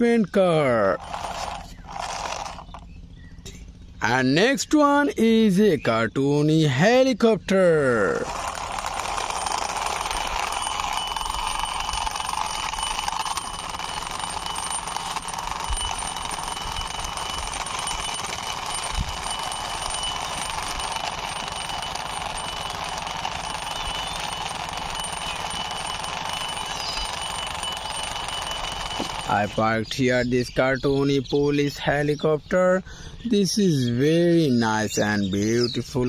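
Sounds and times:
toy helicopter rattling whirr: 0.5s - 3.0s, 7.6s - 31.3s, 34.6s - 36.0s.

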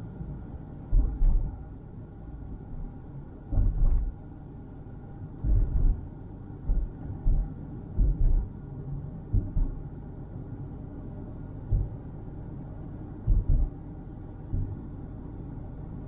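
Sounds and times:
car road rumble: 0.0s - 16.0s
dull low thumps: 0.8s - 1.6s, 3.5s - 4.2s, 5.4s - 8.6s, 9.2s - 9.8s, 11.6s - 12.0s, 13.2s - 13.8s, 14.5s - 14.8s.

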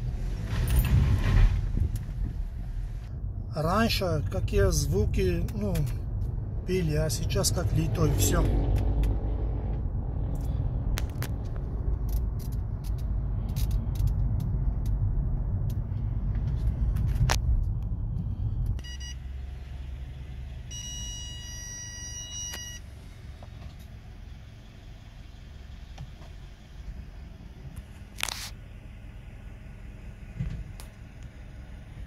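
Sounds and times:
car cabin road rumble: 0.0s - 32.0s
scattered clicks: 10.3s - 15.8s.

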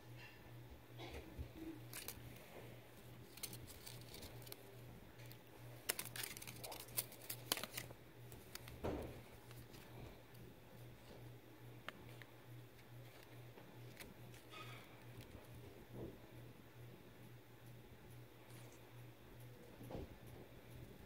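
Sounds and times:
faint low hum: 0.0s - 21.0s
paper rustling and crinkling: 1.8s - 10.1s, 12.8s - 15.5s
sharp paper clicks: 1.9s - 2.2s, 3.2s - 9.9s.

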